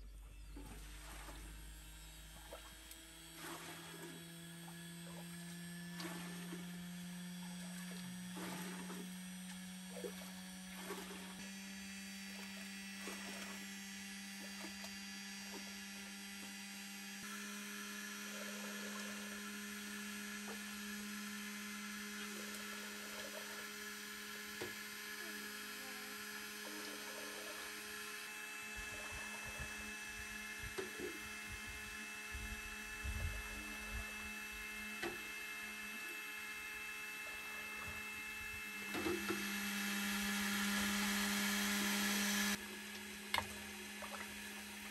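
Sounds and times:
separator motor humming: 0:00.0 - 0:44.9
small knocks and splashes: 0:42.8 - 0:44.9.

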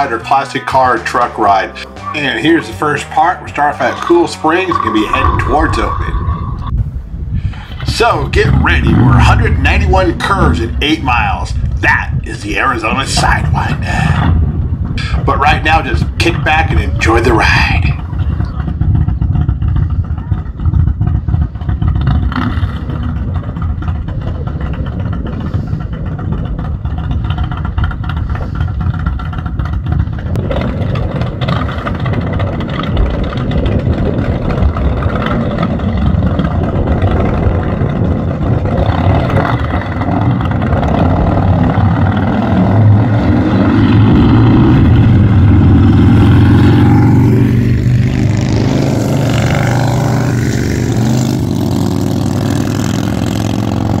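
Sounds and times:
road rumble: 0:00.0 - 0:54.0
vehicle engine revving: 0:01.2 - 0:06.8, 0:17.6 - 0:54.0.

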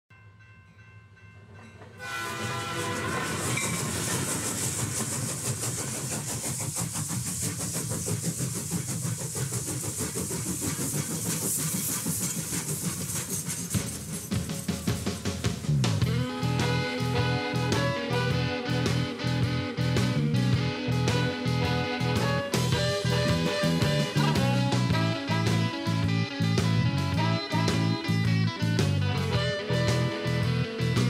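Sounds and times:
train clickety-clack on rails: 0:00.4 - 0:31.0
train whistle: 0:02.0 - 0:05.0, 0:16.1 - 0:19.4, 0:20.6 - 0:26.1.

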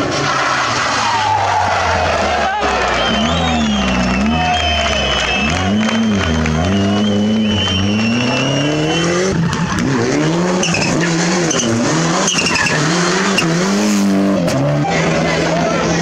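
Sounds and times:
rally car engines revving: 0:00.0 - 0:16.0
tyre squeals: 0:10.5 - 0:13.6.

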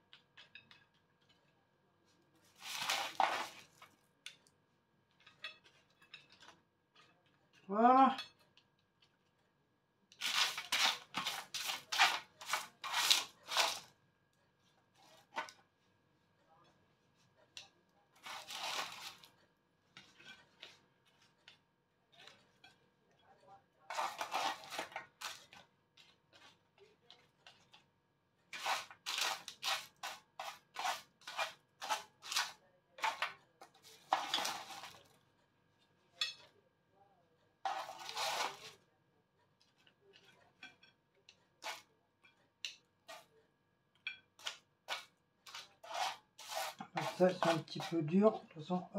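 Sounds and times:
utensils scraping cookware: 0:02.5 - 0:03.8, 0:10.2 - 0:13.9, 0:18.2 - 0:19.4, 0:23.9 - 0:27.8, 0:28.5 - 0:35.1, 0:37.6 - 0:38.8, 0:41.6 - 0:42.4, 0:44.1 - 0:48.7.

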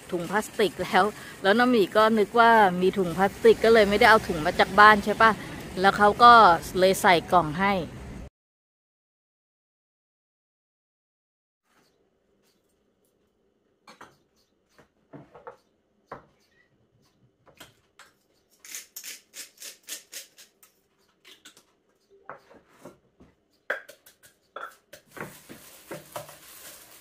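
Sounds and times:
food mixed in steel bowl: 0:24.0 - 0:27.0.

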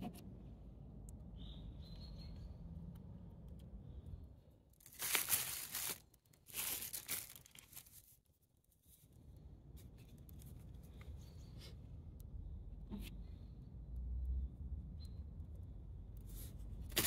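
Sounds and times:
rustling tearing noise: 0:04.8 - 0:08.3.

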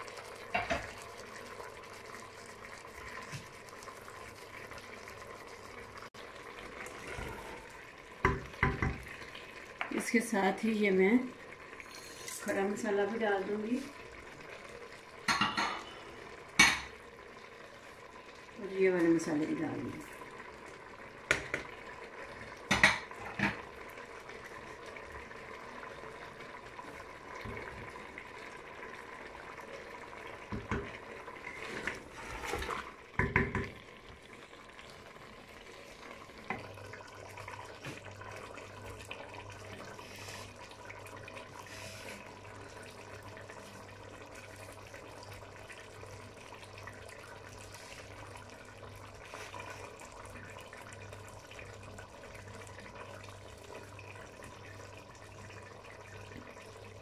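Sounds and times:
food sizzling: 0:00.0 - 0:57.0
wooden spoon knocking on metal pot: 0:08.2 - 0:09.0, 0:33.2 - 0:33.8.

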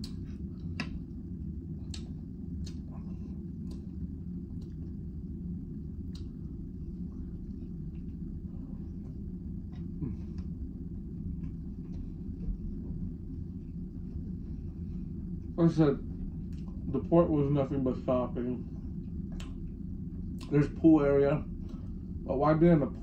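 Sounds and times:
clicks and mouth sounds eating: 0:00.0 - 0:05.3, 0:06.0 - 0:06.5, 0:16.4 - 0:16.9, 0:19.1 - 0:20.6
low cabin rumble: 0:00.0 - 0:23.0.

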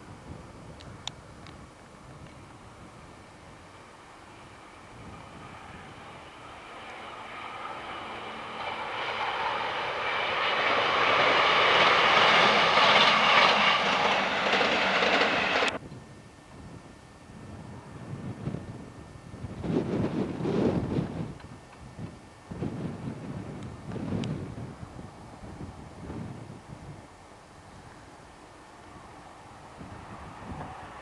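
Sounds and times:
diesel train passing: 0:03.3 - 0:15.8, 0:28.6 - 0:31.0
wind on microphone: 0:04.8 - 0:27.1, 0:29.6 - 0:31.0.

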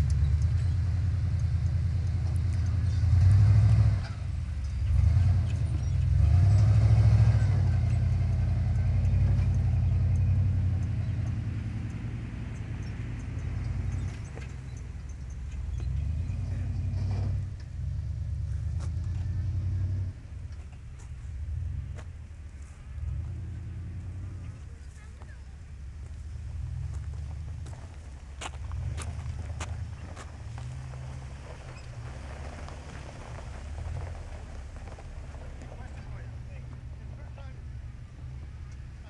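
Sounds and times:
truck engine revving: 0:00.0 - 0:20.7, 0:21.3 - 0:39.0.

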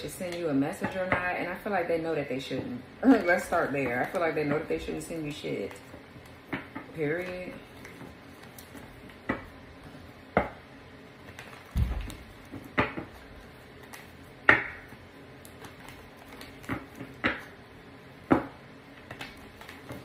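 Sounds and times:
cards shuffled by hand: 0:15.4 - 0:17.2, 0:19.0 - 0:20.0.

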